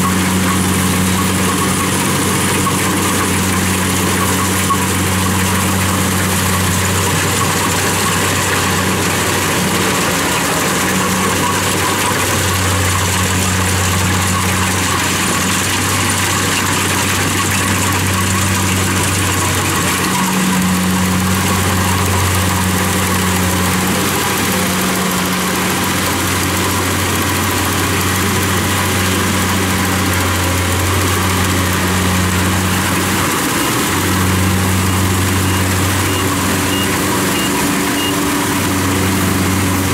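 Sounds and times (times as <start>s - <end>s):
combine harvester engine drone: 0.0s - 39.9s.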